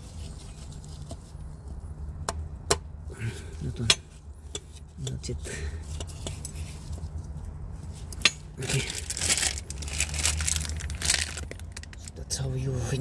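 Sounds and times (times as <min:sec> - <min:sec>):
gloved hands rustling and scraping: 0:00.0 - 0:02.0, 0:05.8 - 0:12.2.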